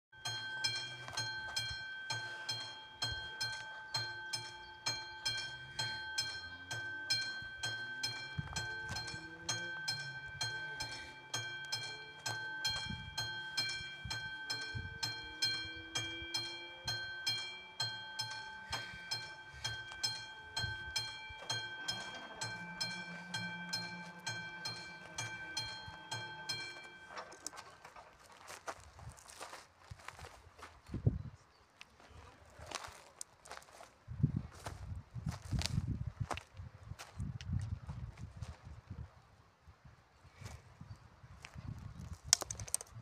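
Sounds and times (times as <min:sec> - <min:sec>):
level crossing warning bell: 0:00.1 - 0:28.5.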